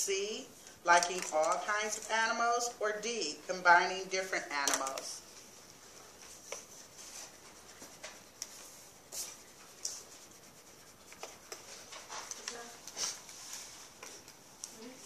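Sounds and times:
worksheets rustling: 0:00.9 - 0:02.7, 0:04.1 - 0:15.0
pencils scratching on paper: 0:04.1 - 0:14.0.

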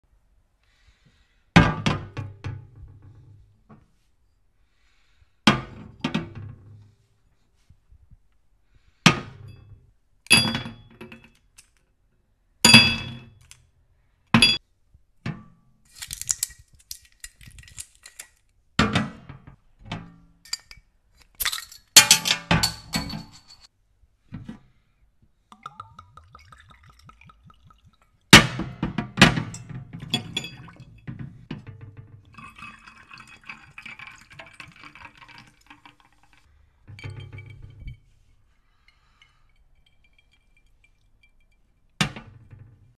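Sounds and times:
glass bottles knocking: 0:25.5 - 0:28.0, 0:29.4 - 0:31.4, 0:32.2 - 0:38.2, 0:38.8 - 0:42.4
ice clinking in glass: 0:30.0 - 0:31.0, 0:32.3 - 0:36.2, 0:38.9 - 0:41.7.

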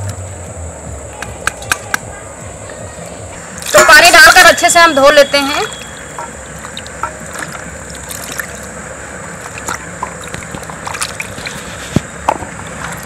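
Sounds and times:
water sloshing: 0:05.3 - 0:13.0.

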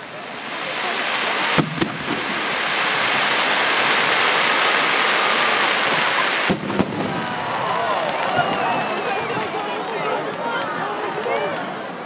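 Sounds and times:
loud steady hiss: 0:00.0 - 0:08.0.

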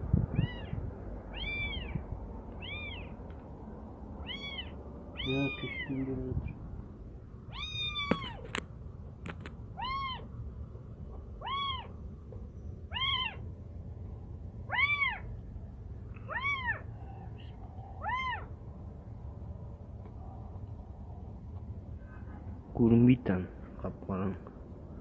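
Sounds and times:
kitten meowing in distress: 0:00.3 - 0:02.0, 0:02.6 - 0:03.1, 0:04.2 - 0:06.2, 0:07.5 - 0:08.4, 0:09.8 - 0:10.3, 0:11.4 - 0:11.9, 0:12.9 - 0:13.4, 0:14.7 - 0:15.2, 0:16.3 - 0:16.8, 0:18.0 - 0:18.5.

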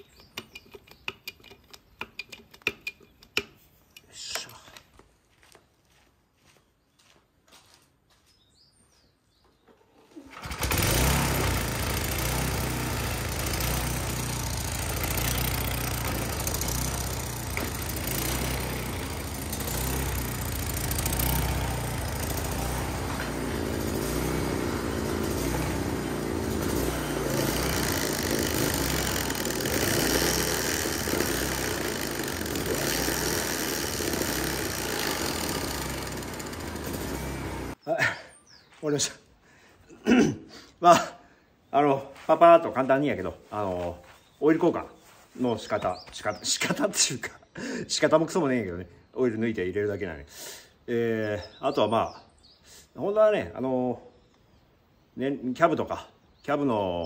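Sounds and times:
mower engine starting and running: 0:10.0 - 0:37.8.

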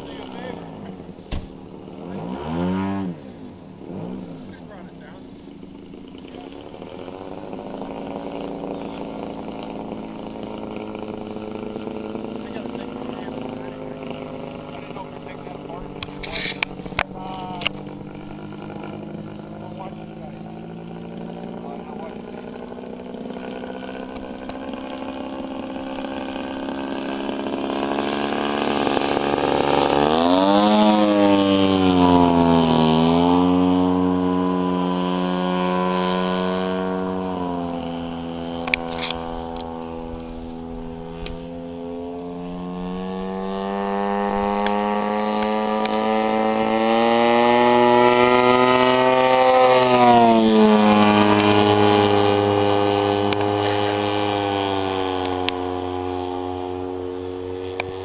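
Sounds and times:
model plane engine and propeller: 0:00.0 - 0:58.0.

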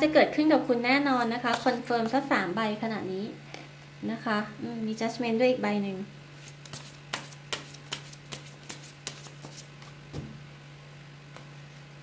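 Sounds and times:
cards being shuffled: 0:06.4 - 0:10.0.

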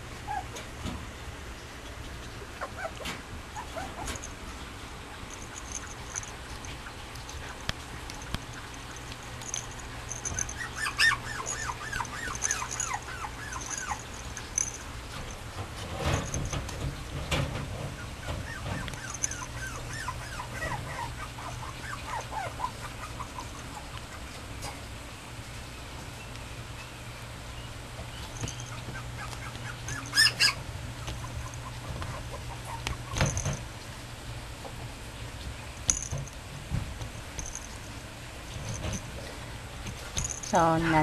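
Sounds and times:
puppy whimpering: 0:00.2 - 0:00.7, 0:02.4 - 0:04.4, 0:05.2 - 0:14.8, 0:17.9 - 0:24.4, 0:28.3 - 0:33.6
soft knocks and rustles: 0:11.5 - 0:19.4, 0:38.4 - 0:40.6.

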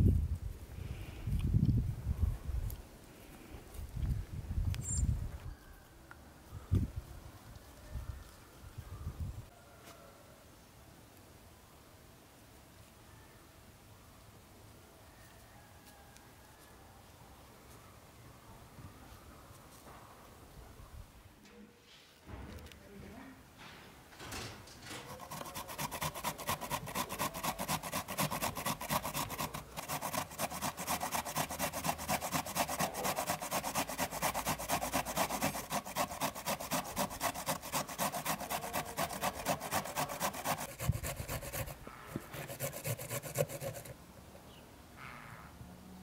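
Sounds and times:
grating on a metal grater: 0:25.0 - 0:43.9.

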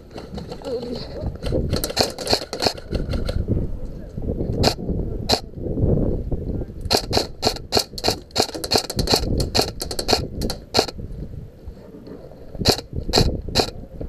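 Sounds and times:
airsoft rifle shots: 0:01.4 - 0:03.4, 0:04.6 - 0:05.5, 0:06.9 - 0:11.0, 0:12.6 - 0:13.7.

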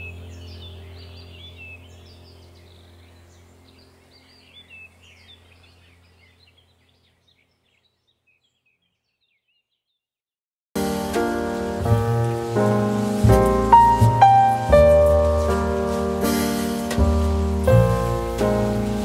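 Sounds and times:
low steady hum: 0:00.0 - 0:07.3, 0:11.0 - 0:19.0
birds chirping: 0:00.0 - 0:10.0.

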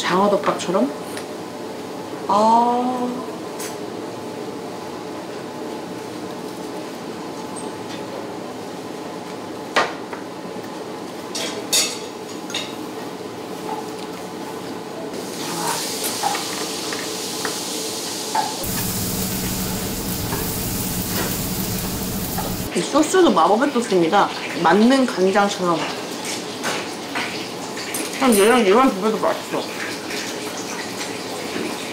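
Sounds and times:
steak sizzling on grill: 0:15.3 - 0:22.7
low hum: 0:18.6 - 0:22.7.

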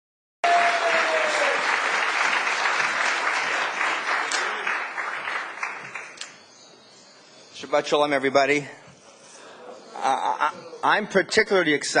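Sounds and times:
audience applauding: 0:00.4 - 0:06.3.

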